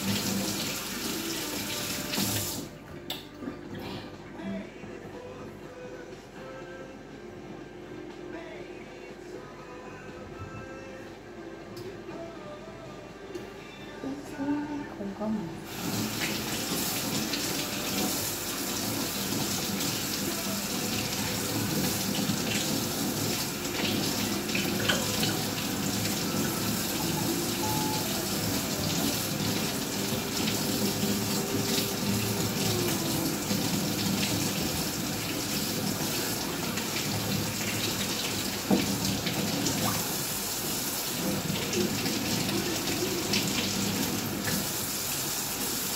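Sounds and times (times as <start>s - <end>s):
kitchen faucet running into sink: 15.7s - 45.9s.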